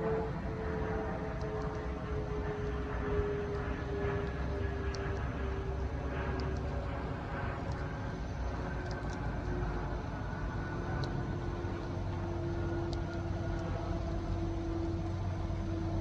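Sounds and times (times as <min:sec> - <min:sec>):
distant train rumble: 0:00.0 - 0:16.0.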